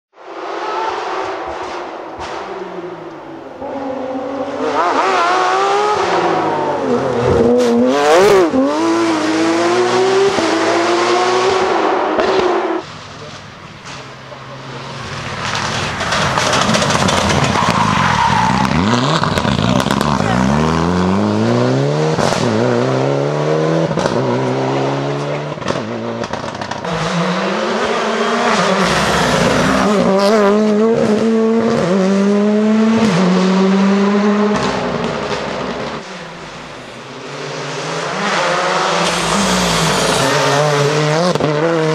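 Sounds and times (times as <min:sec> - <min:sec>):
rally car engine passing at speed: 0:00.2 - 0:41.9
engine crackling: 0:15.0 - 0:20.8.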